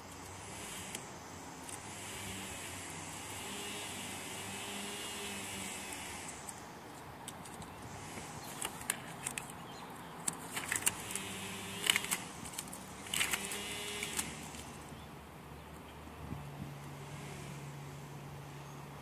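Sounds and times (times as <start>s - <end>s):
faint steady hum: 0.0s - 19.0s
tape tearing and crackling: 5.6s - 14.9s.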